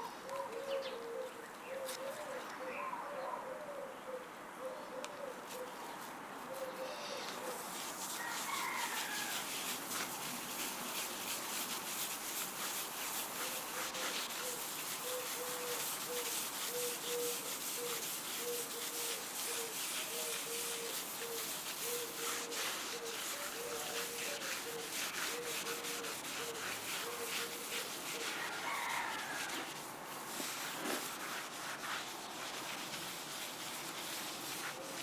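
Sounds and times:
cloth scrubbing wood: 0:07.4 - 0:35.0.

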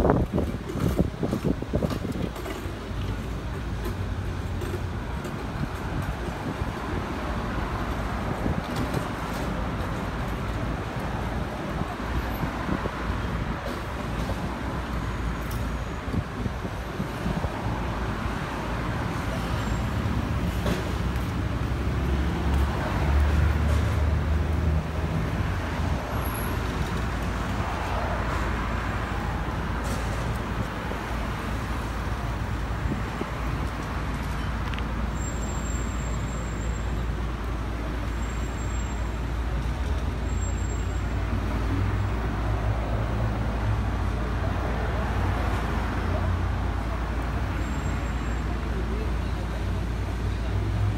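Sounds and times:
road traffic rumble: 0:00.0 - 0:50.9.

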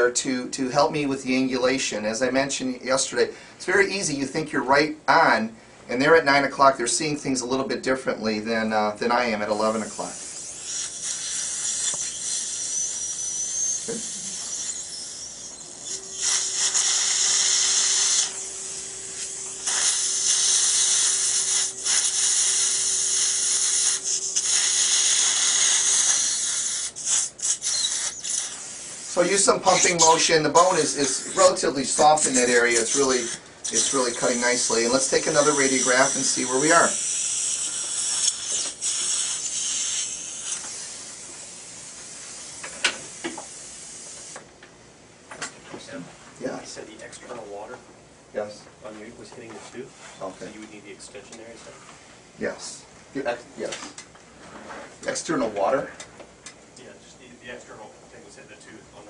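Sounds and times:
dental drill whine: 0:09.4 - 0:44.4
water spray hiss: 0:09.8 - 0:15.2, 0:16.2 - 0:30.0, 0:32.2 - 0:44.4.

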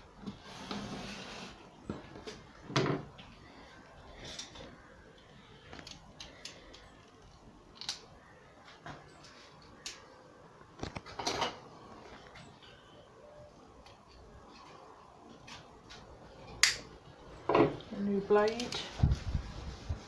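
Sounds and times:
scraping rustle: 0:00.3 - 0:02.3
craft knife clicks and taps: 0:16.6 - 0:16.8.

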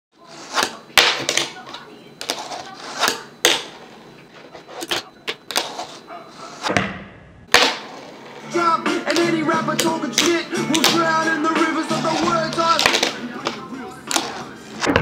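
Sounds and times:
hip hop music: 0:08.3 - 0:14.9.

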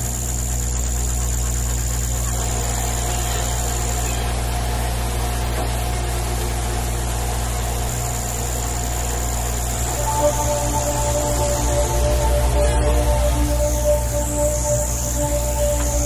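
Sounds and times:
low mechanical drone: 0:00.0 - 0:16.0
thin high whine: 0:00.0 - 0:16.0
sustained music notes: 0:09.7 - 0:16.0.

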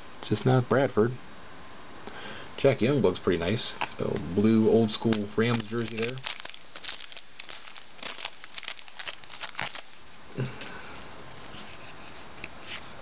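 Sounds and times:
foil wrapper crinkling: 0:04.8 - 0:10.1.

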